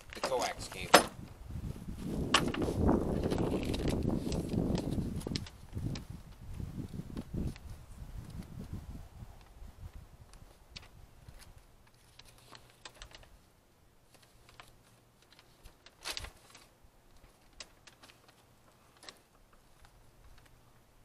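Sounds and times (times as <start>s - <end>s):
paper rustling: 2.3s - 6.4s, 10.4s - 20.6s
paper crackle: 2.4s - 6.4s, 10.3s - 20.6s.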